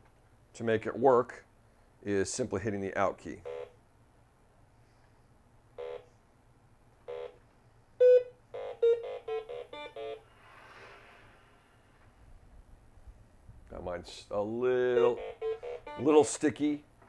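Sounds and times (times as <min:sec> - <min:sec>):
electronic keypad beeps: 0:08.0 - 0:10.2
faint rushing noise: 0:10.2 - 0:14.6.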